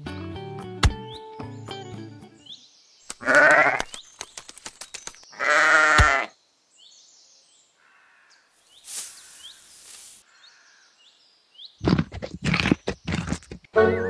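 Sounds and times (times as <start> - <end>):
sheep bleating: 3.2 - 3.9, 5.4 - 6.3
short rustling hiss: 8.6 - 10.3.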